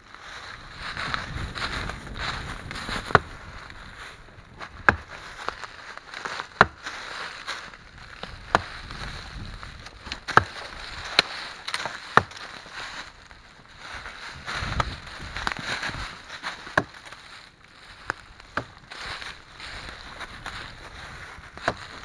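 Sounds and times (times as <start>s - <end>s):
hatchet chopping tree trunk: 3.1s - 3.3s, 4.6s - 5.6s, 6.2s - 7.0s, 8.2s - 8.9s, 10.0s - 12.5s, 16.6s - 17.0s, 18.5s - 18.8s.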